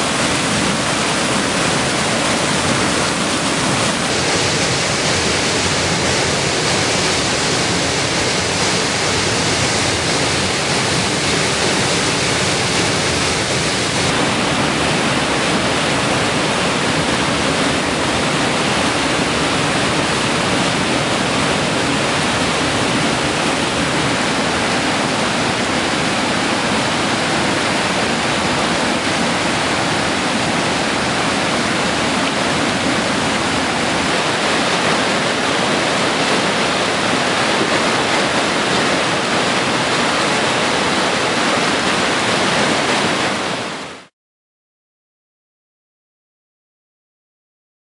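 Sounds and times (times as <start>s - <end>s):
water rushing through rapids: 0.0s - 44.1s.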